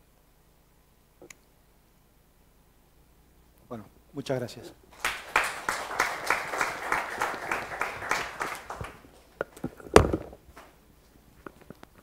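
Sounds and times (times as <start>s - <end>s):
audience applauding: 4.9s - 9.3s.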